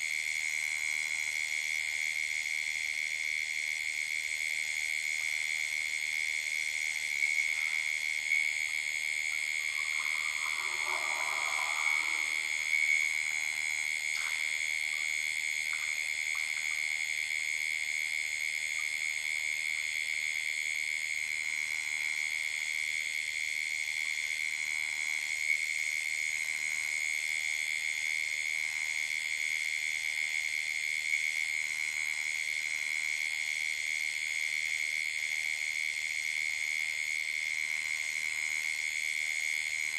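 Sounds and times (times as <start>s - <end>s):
frogs and insects calling: 4.3s - 39.9s
soft rush of noise: 9.5s - 13.2s.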